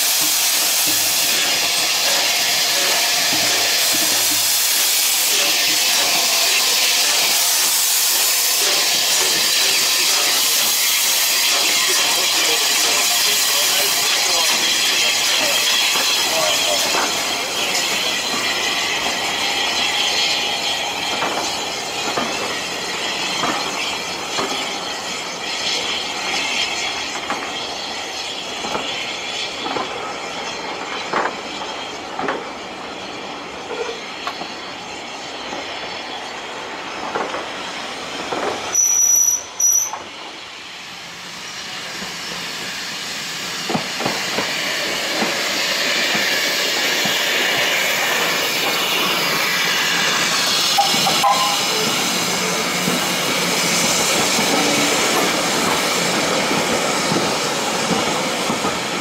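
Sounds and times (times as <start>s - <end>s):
train rumble and hiss: 0.0s - 59.0s
train wheel squeal: 0.0s - 59.0s
train wheels clicking over rail joints: 0.1s - 27.8s, 43.4s - 59.0s
high-pitched train whistle: 38.7s - 40.0s, 50.7s - 52.0s.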